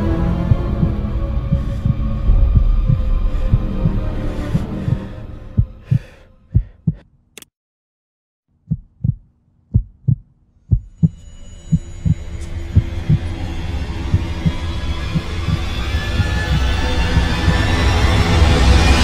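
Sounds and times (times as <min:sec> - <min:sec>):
heartbeat thuds: 0:00.3 - 0:07.1, 0:08.6 - 0:13.3, 0:14.1 - 0:17.7.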